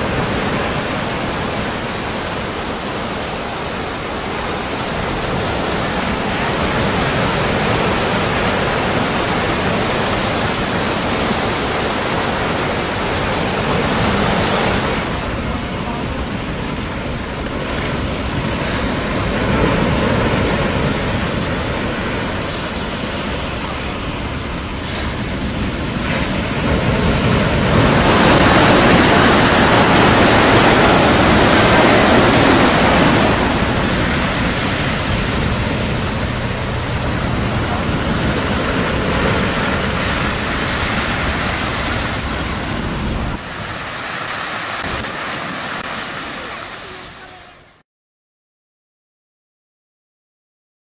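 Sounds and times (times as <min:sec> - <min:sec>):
wind rumble on microphone: 0:00.0 - 0:47.2
strong wind: 0:00.0 - 0:47.8
waves breaking: 0:00.0 - 0:47.8.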